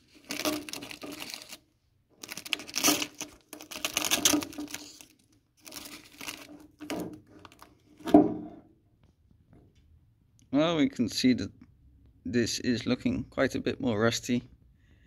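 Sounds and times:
masking tape peeling and crinkling: 0.0s - 7.8s.

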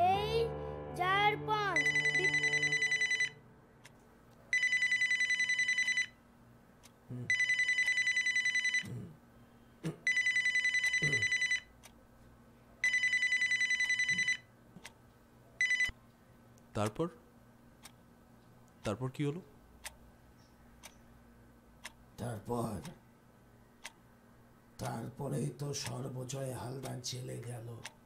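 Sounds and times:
telephone bell ringing: 1.8s - 3.4s, 4.6s - 6.2s, 7.3s - 8.9s, 10.1s - 11.7s, 12.8s - 14.5s, 15.6s - 15.9s.

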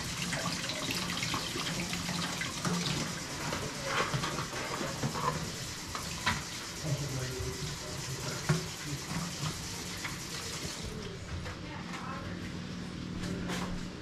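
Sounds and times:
tap water running into sink: 0.0s - 11.0s.

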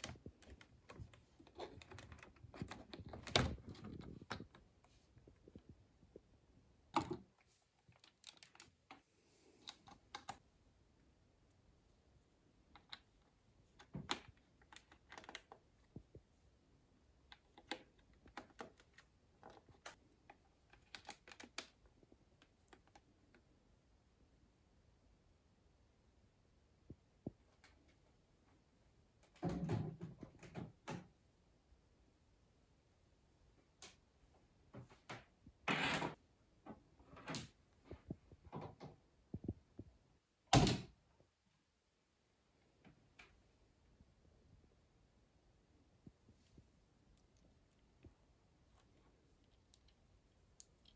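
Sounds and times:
cables clicking and knocking on desk: 0.0s - 10.5s, 12.6s - 16.4s, 17.2s - 23.5s.

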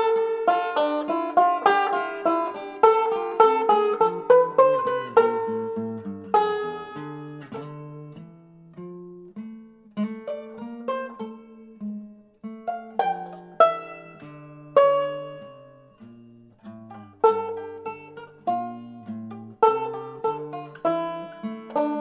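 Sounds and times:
picked string notes: 0.0s - 22.0s.

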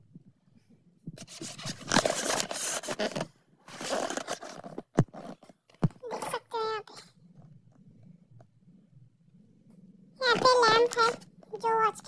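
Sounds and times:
objects scraping and rustling on table: 1.2s - 5.7s.

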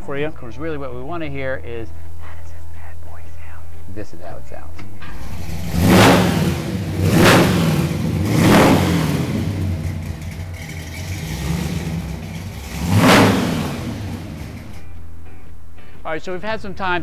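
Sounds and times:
vee eight engine revving: 5.0s - 14.9s.

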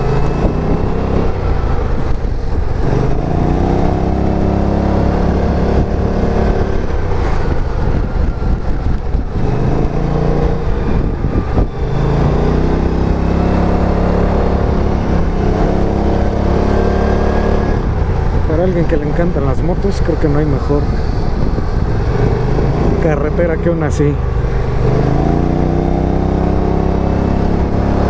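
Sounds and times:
scooter engine under way: 0.0s - 19.2s
wind noise: 0.0s - 28.0s.

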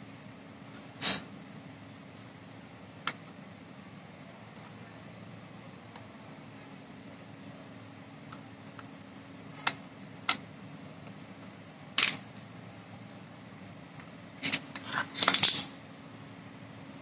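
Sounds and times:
small metal parts clicking: 14.4s - 15.7s.

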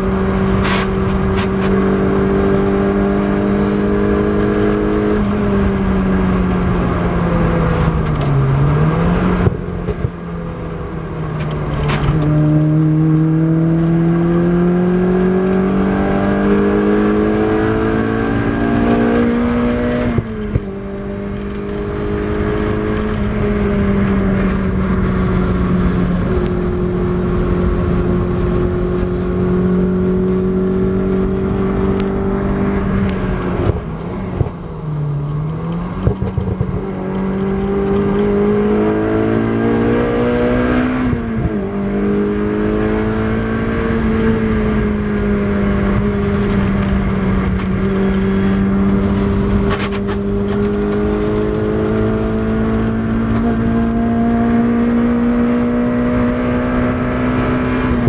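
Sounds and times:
car engine revving: 0.0s - 58.0s
gear change: 16.4s - 58.0s.

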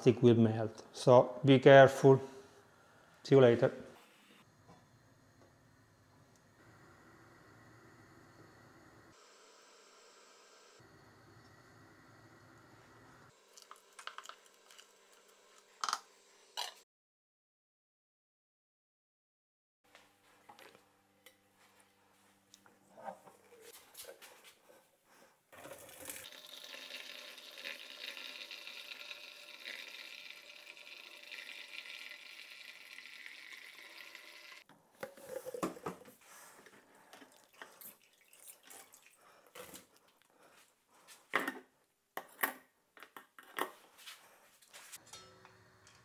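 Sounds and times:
liquid splashing into bucket: 37.2s - 39.2s.

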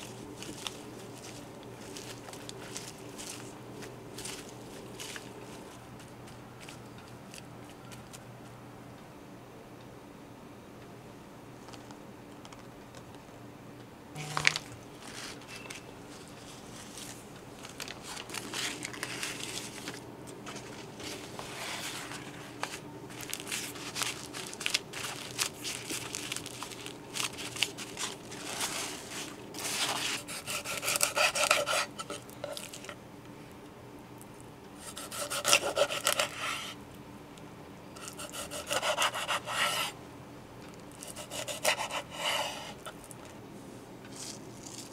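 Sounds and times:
paper towels rubbing fish: 0.0s - 5.6s, 17.8s - 32.8s
knife sawing fish on board: 29.7s - 32.2s, 34.8s - 36.8s, 38.0s - 40.0s, 41.0s - 42.8s.

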